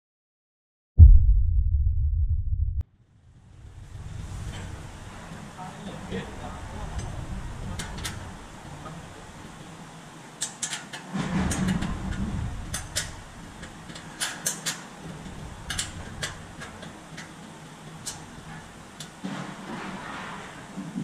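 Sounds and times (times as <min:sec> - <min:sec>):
loud low rumble: 0:01.0 - 0:02.8.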